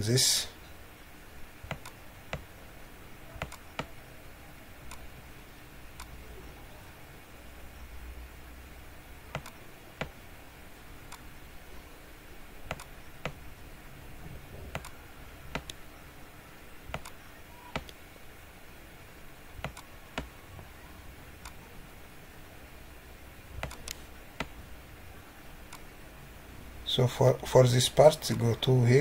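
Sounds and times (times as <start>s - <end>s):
faint steady hiss: 0.0s - 29.0s
computer mouse clicks: 1.7s - 2.5s, 3.4s - 3.9s, 9.3s - 10.2s, 12.6s - 13.4s, 14.7s - 15.8s, 16.9s - 18.0s, 19.6s - 20.3s, 23.6s - 24.6s, 25.7s - 25.9s.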